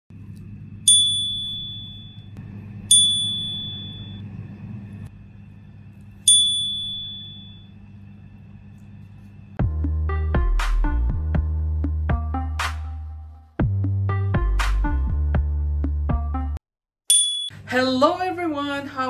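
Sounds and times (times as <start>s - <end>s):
faint low hum: 0.1s - 9.6s
bright ding chimes: 17.1s - 17.6s.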